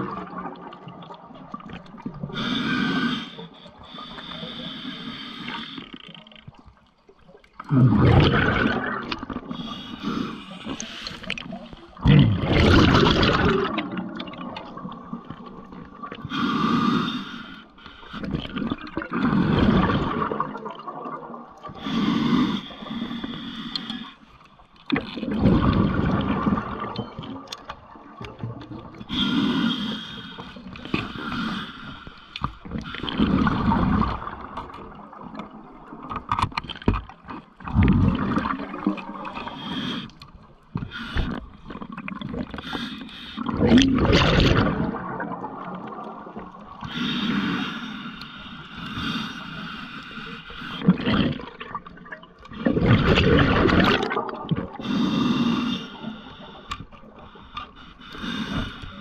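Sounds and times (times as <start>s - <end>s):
exhaust bubbles rushing: 7.7s - 9.4s, 12.0s - 14.2s.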